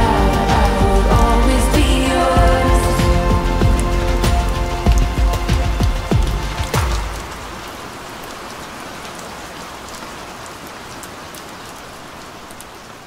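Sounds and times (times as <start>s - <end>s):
steady rainfall hiss: 0.0s - 13.0s
raindrop ticks: 3.6s - 12.8s.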